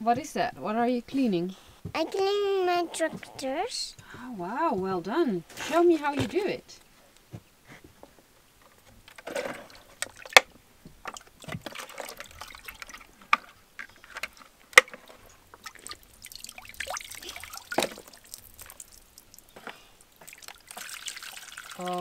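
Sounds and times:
water sloshing and trickling: 0:09.2 - 0:22.0.

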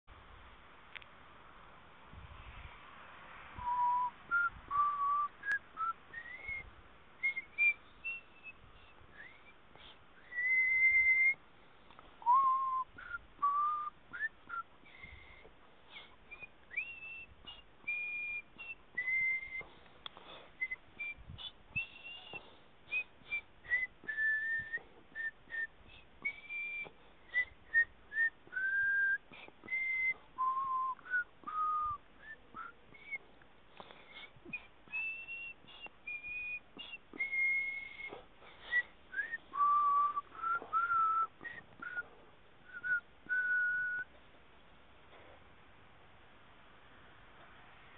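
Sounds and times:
person whistling a tune: 0:03.6 - 0:11.4, 0:12.2 - 0:19.7, 0:20.6 - 0:33.2, 0:34.0 - 0:44.1.

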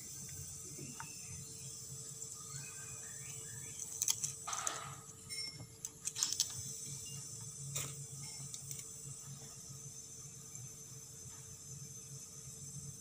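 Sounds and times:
refrigerant hiss: 0:00.0 - 0:13.0
refrigerator compressor hum: 0:00.0 - 0:13.0.

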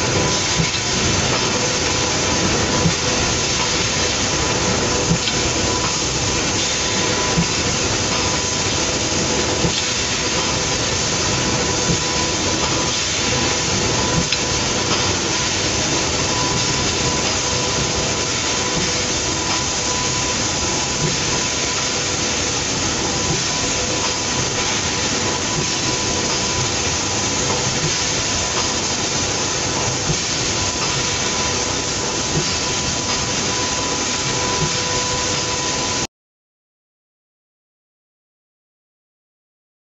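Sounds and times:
machine hissing: 0:00.0 - 0:36.0
machine whine: 0:00.0 - 0:36.1.

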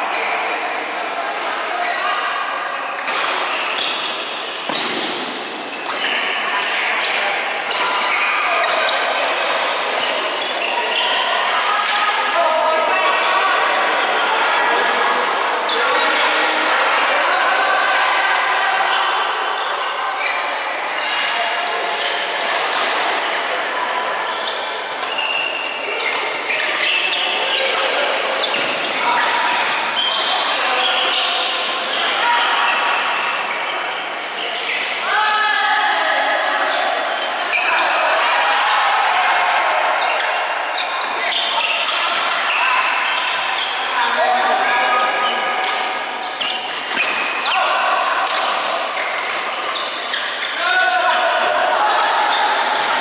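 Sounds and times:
players' voices: 0:00.0 - 0:53.0
shoe squeaks on court: 0:02.9 - 0:05.3, 0:24.3 - 0:32.9, 0:44.6 - 0:47.7
racket hitting shuttlecock: 0:03.0 - 0:06.4, 0:48.2 - 0:50.4.

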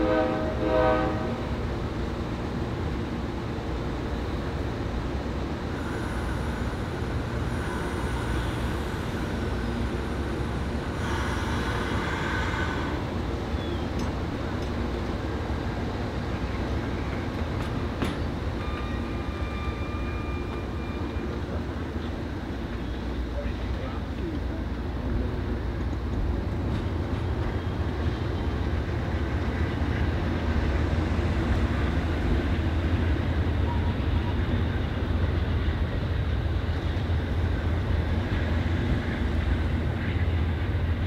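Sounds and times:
train low rumble: 0:00.0 - 0:41.0
air hiss: 0:05.7 - 0:13.1.

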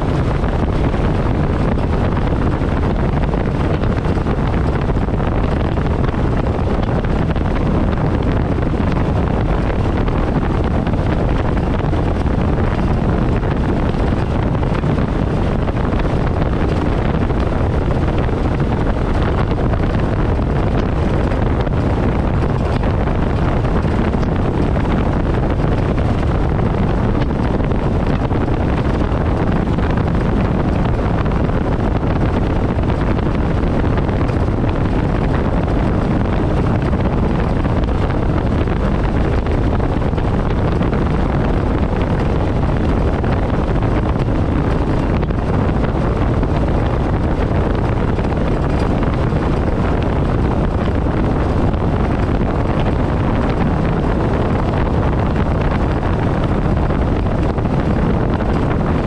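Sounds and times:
rush of boat wake: 0:00.0 - 0:59.0
wind buffeting microphone: 0:00.0 - 0:59.0.

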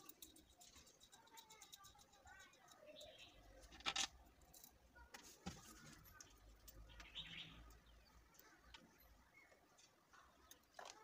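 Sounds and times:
faint high chirp: 0:06.7 - 0:10.6.

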